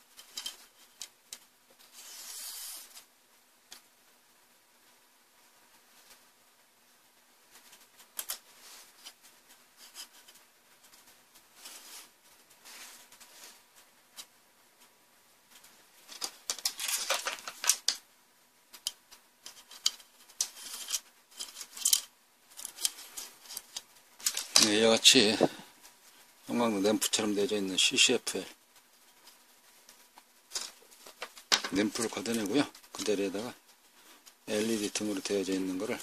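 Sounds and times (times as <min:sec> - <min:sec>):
plastic parts clicking and tapping: 0:16.1 - 0:18.0, 0:18.7 - 0:24.7, 0:30.5 - 0:33.2.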